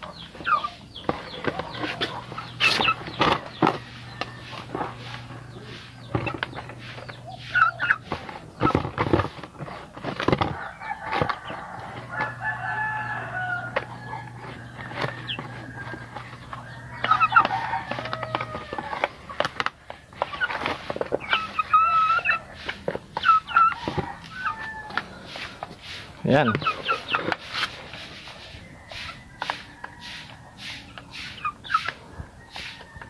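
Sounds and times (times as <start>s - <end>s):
chickens clucking: 0.0s - 33.0s
rooster crowing: 3.7s - 6.0s, 10.4s - 19.2s, 23.4s - 25.6s, 28.4s - 30.9s, 32.1s - 33.0s.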